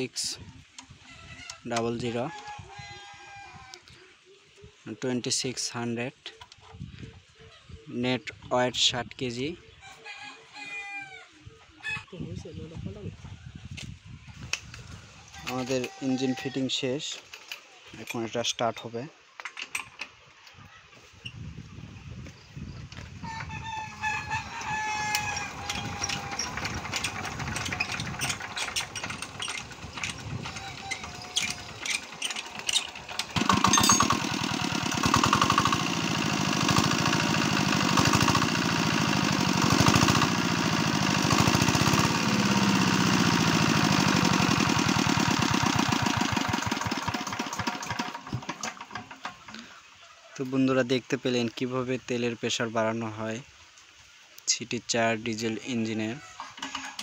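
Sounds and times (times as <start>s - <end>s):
rooster crowing: 9.8s - 11.3s, 23.2s - 27.8s, 30.4s - 31.9s
diesel engine turning over: 24.5s - 49.5s, 56.4s - 57.0s
diesel engine running: 25.1s - 49.0s.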